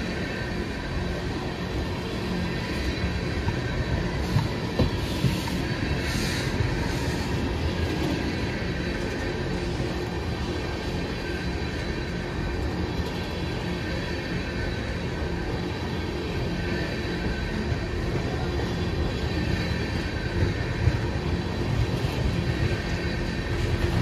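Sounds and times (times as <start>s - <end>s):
train wheels rumbling on rail: 0.0s - 24.0s.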